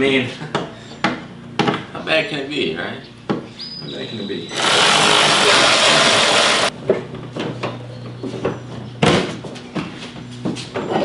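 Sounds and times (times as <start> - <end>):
loud rushing noise: 4.6 - 6.7.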